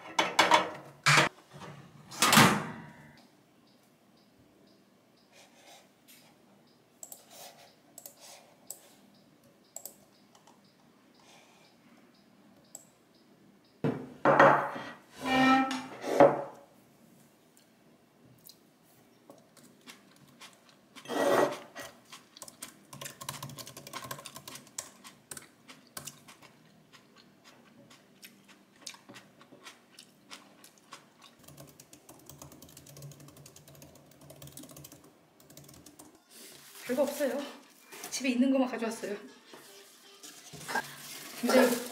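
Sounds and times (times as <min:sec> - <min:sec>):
laptop keyboard typing: 0:22.4 - 0:26.1, 0:31.3 - 0:36.2.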